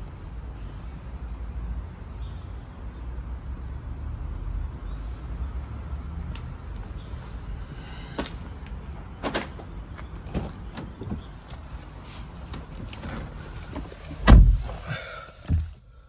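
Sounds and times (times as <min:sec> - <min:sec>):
car door clicks and knocks: 0:09.2 - 0:11.3, 0:13.7 - 0:14.8
person climbing into car seat: 0:09.2 - 0:15.8
car door shutting thump: 0:14.2 - 0:14.8.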